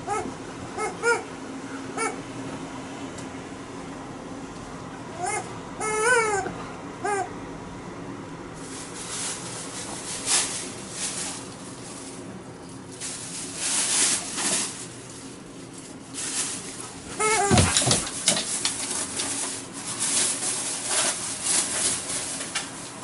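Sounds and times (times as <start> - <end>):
rubber dog toy squeak: 5.2 - 7.3, 17.2 - 18.0.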